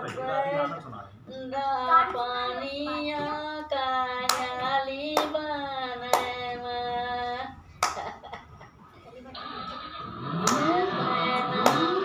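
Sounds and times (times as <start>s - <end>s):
elderly woman singing: 1.3s - 7.6s, 10.5s - 12.0s
hands clapping: 4.3s - 4.6s, 6.1s - 6.4s, 7.8s - 8.1s, 10.4s - 12.0s.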